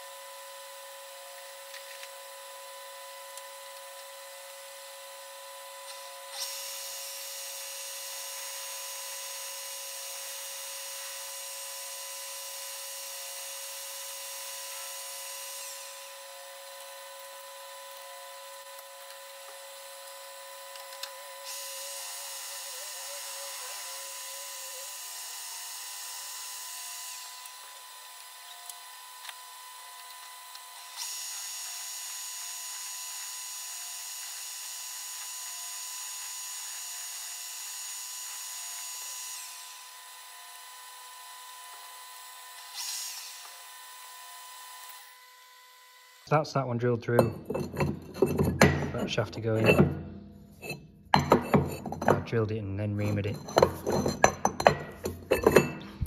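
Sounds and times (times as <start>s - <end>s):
metal lathe motor whine: 0.0s - 46.3s, 47.2s - 52.3s, 53.0s - 56.0s
drill cutting squeal: 5.6s - 46.3s.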